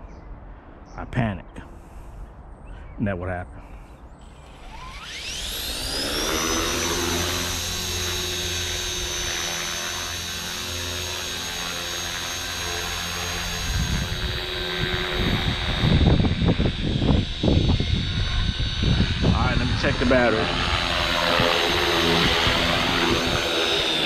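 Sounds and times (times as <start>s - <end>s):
helicopter motor whine: 4.2s - 24.0s
wind rumble on microphone: 13.5s - 24.0s.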